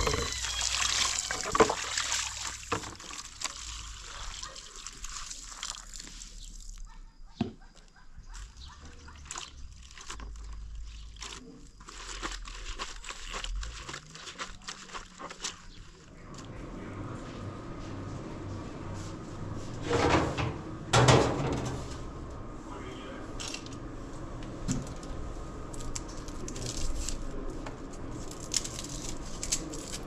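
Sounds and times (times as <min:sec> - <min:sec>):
clothes rubbed in water: 0:00.0 - 0:06.8
hose water pouring into basin: 0:00.0 - 0:06.8
water sloshing and dripping: 0:00.0 - 0:06.8.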